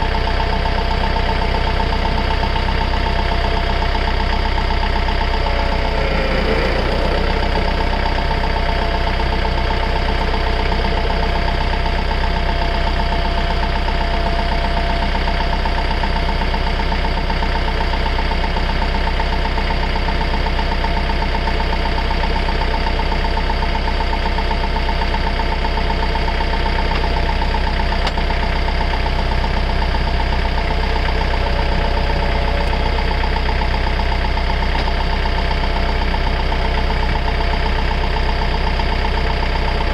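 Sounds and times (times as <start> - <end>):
diesel engine idling: 0.0 - 39.9
hydraulics whining: 2.4 - 14.6, 26.4 - 37.2.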